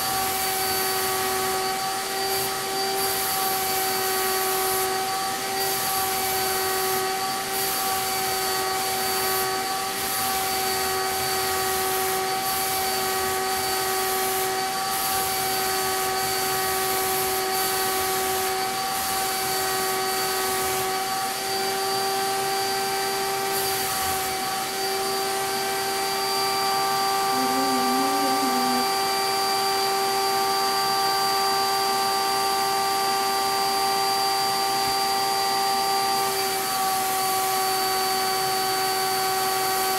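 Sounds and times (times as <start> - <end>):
turbine sprayer whine: 0.0 - 39.9
air hissing from spray gun: 13.7 - 15.4.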